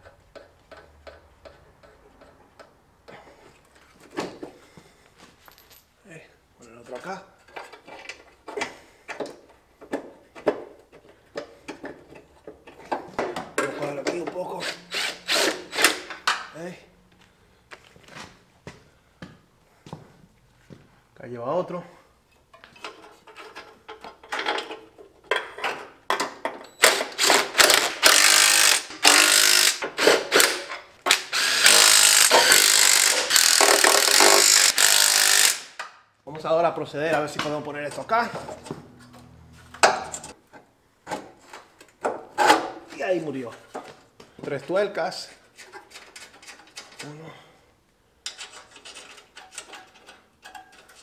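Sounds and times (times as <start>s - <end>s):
power tool running down bolts: 26.8s - 35.8s
metallic clicks of tools and bolts: 48.2s - 51.0s.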